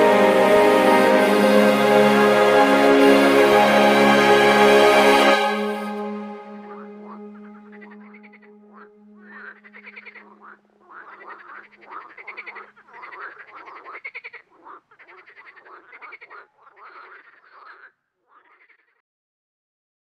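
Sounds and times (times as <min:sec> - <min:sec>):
low steady tone: 0:00.0 - 0:11.5
frogs croaking: 0:06.6 - 0:19.0.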